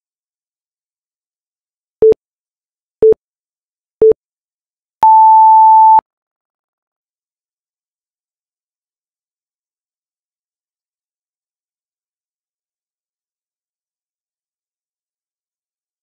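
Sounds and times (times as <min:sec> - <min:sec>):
electronic timer beeps: 0:05.0 - 0:06.0.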